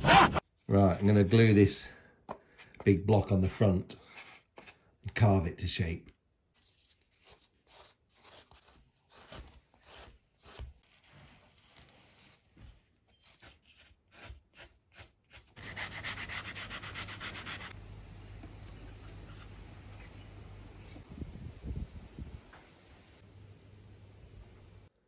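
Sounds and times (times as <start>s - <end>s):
knife shaving balsa wood: 6.6s - 21.0s
sanding wood: 15.6s - 17.8s
steady low hum: 17.1s - 24.9s.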